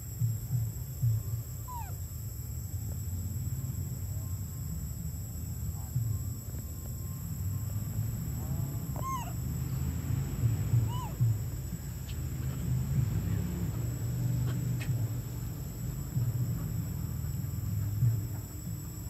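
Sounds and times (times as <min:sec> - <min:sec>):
high insect drone: 0:00.0 - 0:19.0
short arched animal calls: 0:01.6 - 0:02.0, 0:08.8 - 0:09.5, 0:10.8 - 0:11.3
low rumble: 0:02.4 - 0:19.0.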